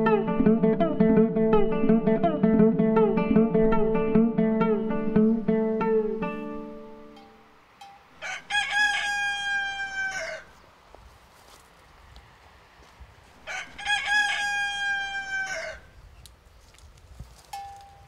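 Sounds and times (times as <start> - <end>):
rooster crowing: 8.1 - 10.6, 13.4 - 16.0.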